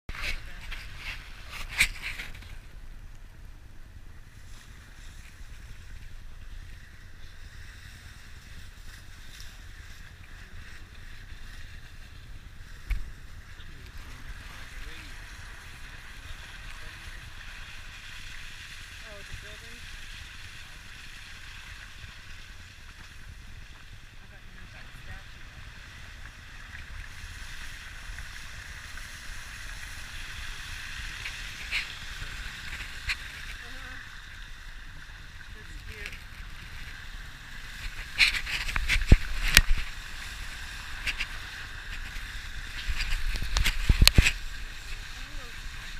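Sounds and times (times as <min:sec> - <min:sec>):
wind on microphone: 0:00.1 - 0:45.9
vehicle rumbling on snowy streets: 0:08.2 - 0:39.2.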